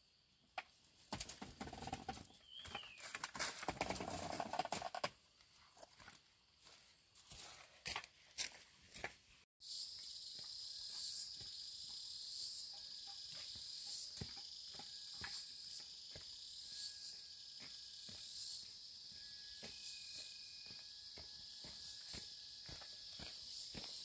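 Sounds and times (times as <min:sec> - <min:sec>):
insects chirring: 0:09.6 - 0:24.0.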